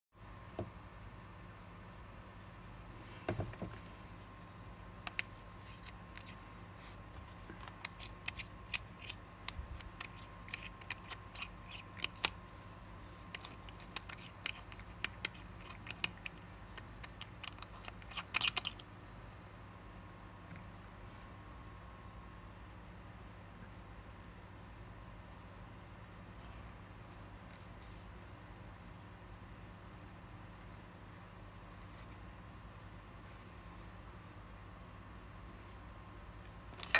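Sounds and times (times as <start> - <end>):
watch case clicking and scraping: 7.6 - 12.4, 13.3 - 18.8.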